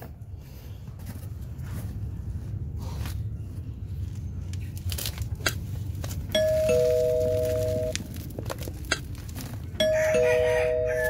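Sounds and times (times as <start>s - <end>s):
low steady rumble: 0.0s - 11.0s
crackling and rustling handling noise: 0.9s - 10.0s
two-tone bell chime: 6.4s - 8.0s, 9.8s - 11.0s.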